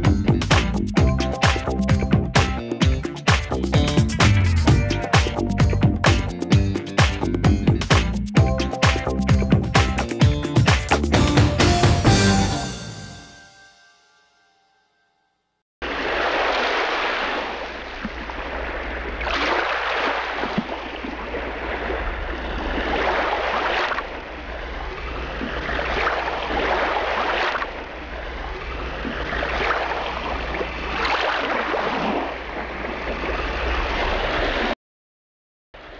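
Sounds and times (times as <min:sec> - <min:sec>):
small waves washing onto beach: 0:15.8 - 0:34.8.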